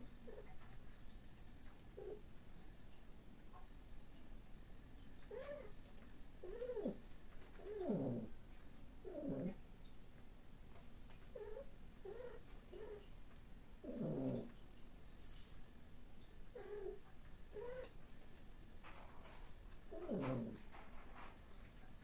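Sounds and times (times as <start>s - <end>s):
cats yowling: 6.4s - 7.0s, 7.6s - 8.3s, 13.8s - 14.5s, 19.9s - 20.6s.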